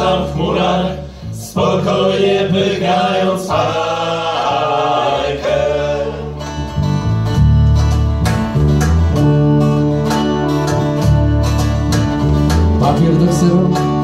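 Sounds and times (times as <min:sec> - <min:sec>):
group vocals: 0:00.0 - 0:07.0
cello bass line: 0:00.0 - 0:14.0
strummed acoustic guitars: 0:00.0 - 0:14.0
cajon beat: 0:06.8 - 0:14.0.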